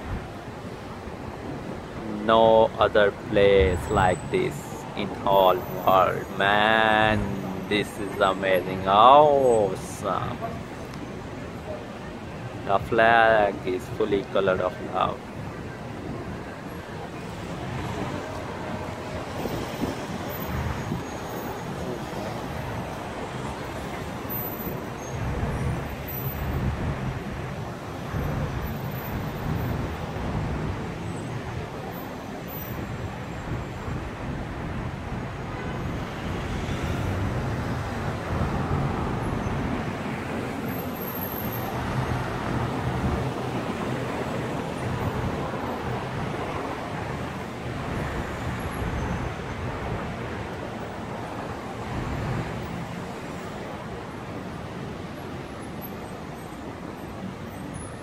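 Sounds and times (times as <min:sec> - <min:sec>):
low traffic rumble: 0:00.0 - 0:58.0
passing cars: 0:00.0 - 0:58.0.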